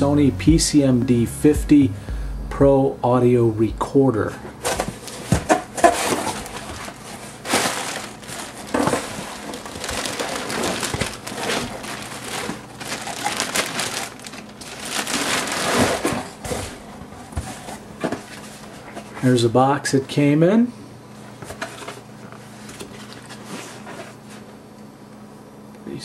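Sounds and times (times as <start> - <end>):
cardboard rustling: 4.6 - 19.2, 21.4 - 24.5
plastic packing crinkling: 4.7 - 19.1.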